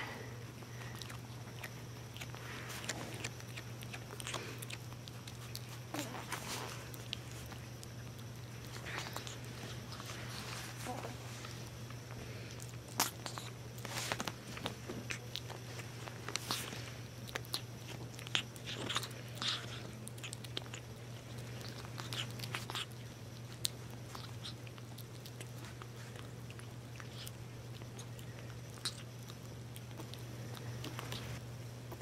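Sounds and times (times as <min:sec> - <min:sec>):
kitten chewing food: 0:00.0 - 0:32.0
low hum: 0:00.0 - 0:32.0.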